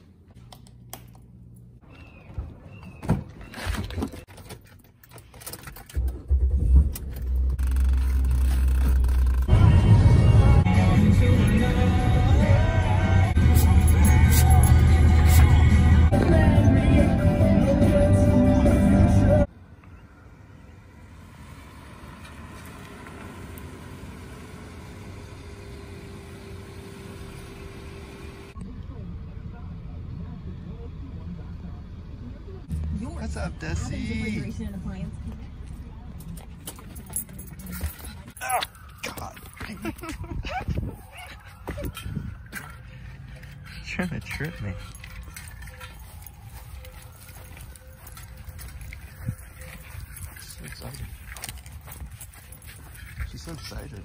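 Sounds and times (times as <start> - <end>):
car engine low rumble: 0.1 - 54.0
music: 9.5 - 19.5.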